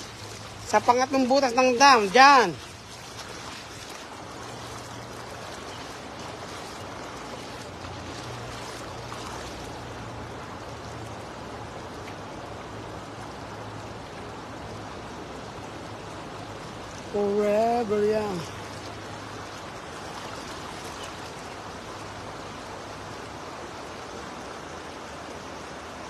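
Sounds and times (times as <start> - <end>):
river water rushing over rocks: 0.0 - 26.0.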